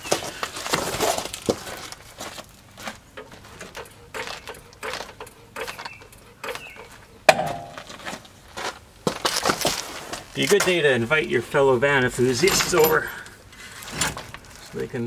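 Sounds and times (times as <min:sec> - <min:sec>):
sharp metal clank: 0:07.3 - 0:07.9.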